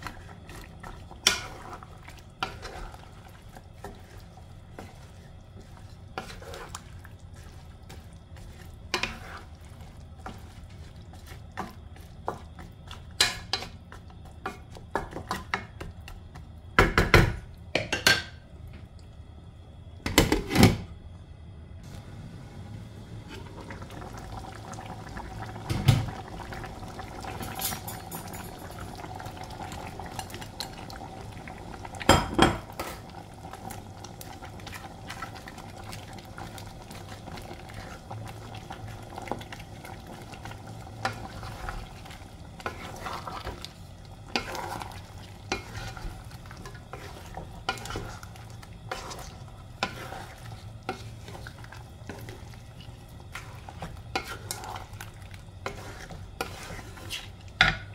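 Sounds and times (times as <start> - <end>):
spatula scraping a pan: 0.0 - 13.8, 41.0 - 57.7
food simmering: 0.0 - 16.9, 21.8 - 57.9
spatula clatters: 27.3 - 28.8, 53.2 - 57.9.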